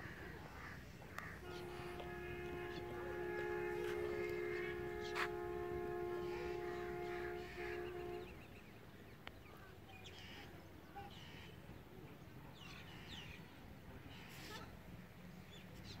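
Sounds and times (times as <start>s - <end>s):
low steady rumble: 0.6s - 8.7s.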